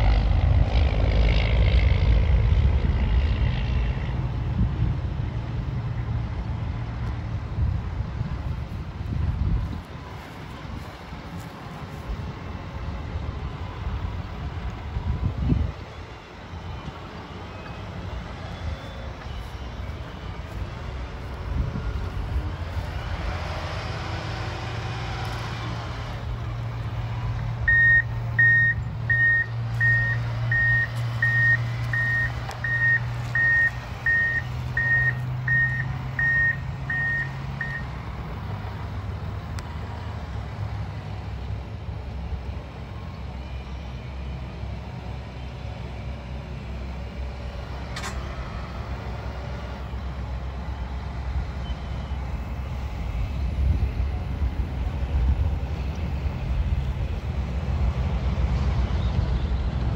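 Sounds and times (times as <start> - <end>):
grader engine running: 0.0 - 59.9
reversing alarm beeping: 27.7 - 38.0.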